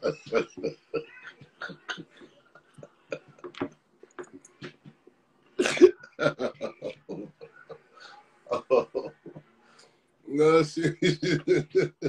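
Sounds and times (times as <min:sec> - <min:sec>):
man laughing hard: 0:00.0 - 0:02.2, 0:05.6 - 0:07.8, 0:08.5 - 0:09.3, 0:10.8 - 0:12.0
cough-like outburst: 0:05.6 - 0:06.1.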